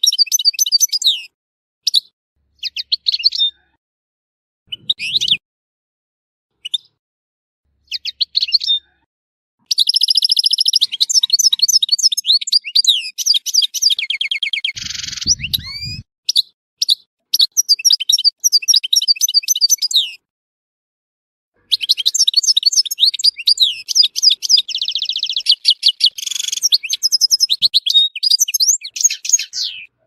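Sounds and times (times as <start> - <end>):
goldfinch twittering and trilling: 0.0 - 1.3, 9.7 - 20.2, 21.7 - 29.9
low rumble: 14.8 - 16.0.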